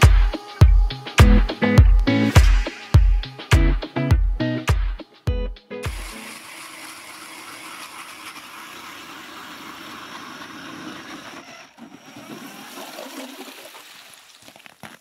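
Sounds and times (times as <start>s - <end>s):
power ice auger drilling ice: 5.9s - 15.0s.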